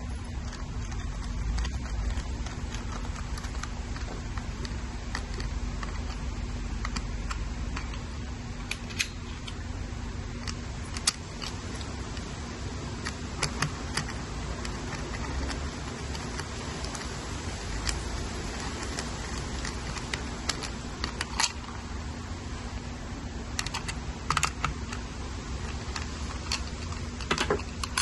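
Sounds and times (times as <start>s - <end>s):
steady low rumble: 0.0s - 28.0s
screwdriver clicks and taps: 25.9s - 28.0s.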